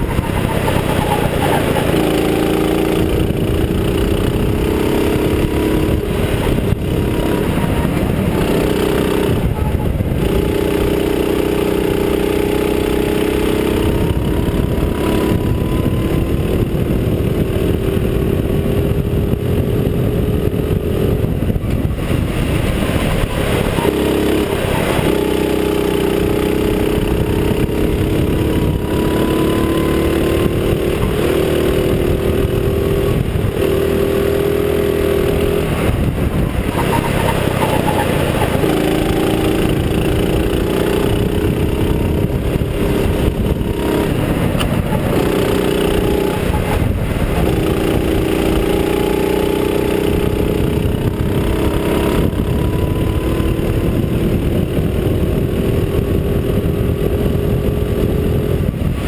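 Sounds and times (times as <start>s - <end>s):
go-kart engine running hard: 0.0s - 59.0s
rushing wind and road noise: 0.0s - 59.0s.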